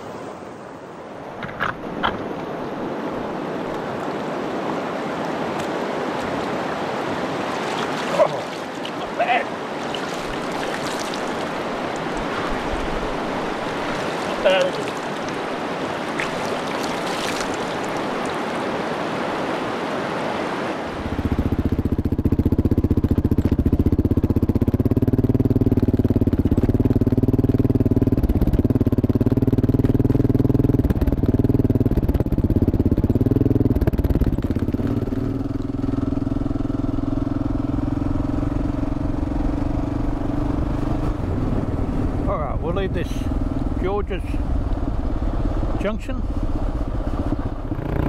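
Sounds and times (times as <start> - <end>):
motorcycle engine running: 21.0 - 48.0.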